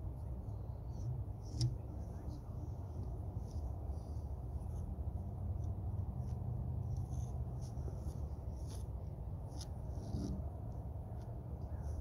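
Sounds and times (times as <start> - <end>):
palette knife scraping canvas: 6.2 - 10.5.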